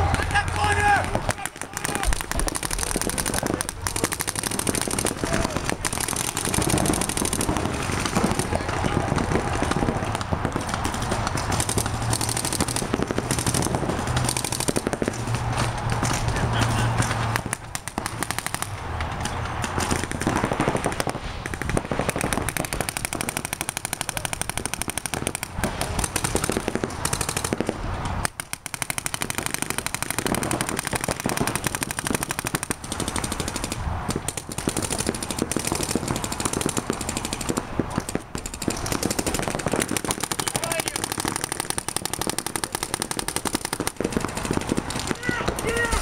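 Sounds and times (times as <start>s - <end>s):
paintball markers firing: 0.0s - 46.0s.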